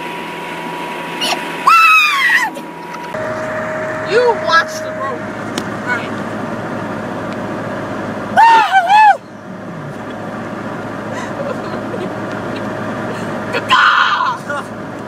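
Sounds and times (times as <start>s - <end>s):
car cabin road and engine noise: 0.0s - 15.0s
high-pitched wavering sound: 0.6s - 8.4s.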